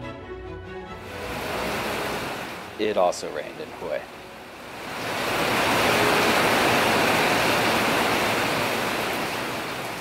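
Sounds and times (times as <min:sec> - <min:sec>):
heavy rain pouring: 0:01.0 - 0:10.0.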